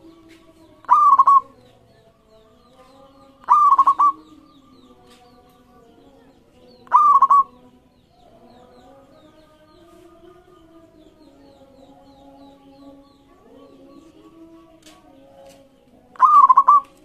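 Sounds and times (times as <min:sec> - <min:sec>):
doves cooing softly in background: 0:00.0 - 0:01.8, 0:03.4 - 0:04.4, 0:06.8 - 0:07.5, 0:13.4 - 0:17.0
dove cooing loudly: 0:00.8 - 0:01.5, 0:03.4 - 0:04.3, 0:06.9 - 0:07.5, 0:16.2 - 0:17.0.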